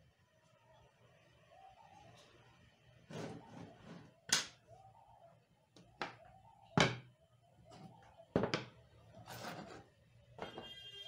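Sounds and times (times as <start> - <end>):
tools knocking on wooden workbench: 6.8 - 7.0, 8.3 - 8.7.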